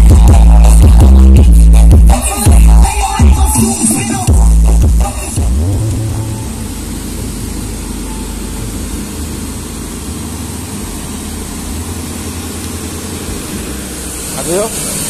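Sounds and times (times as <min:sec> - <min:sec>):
engine running steadily: 0:00.0 - 0:15.0
outdoor noise hiss: 0:03.8 - 0:15.0.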